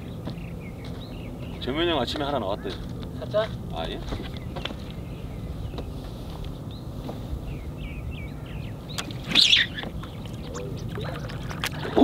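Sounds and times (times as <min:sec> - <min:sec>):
small birds chirping: 0:00.0 - 0:12.0
harsh bird call: 0:09.2 - 0:09.8.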